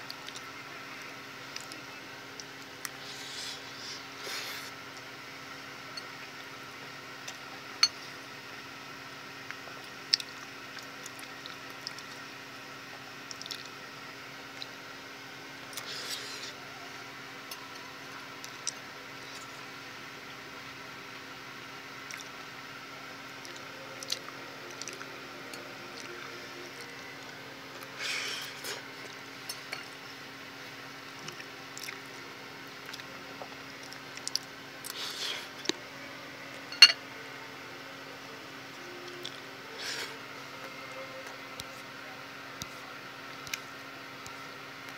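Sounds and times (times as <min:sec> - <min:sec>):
fork clinking on plate: 0:36.7 - 0:37.0.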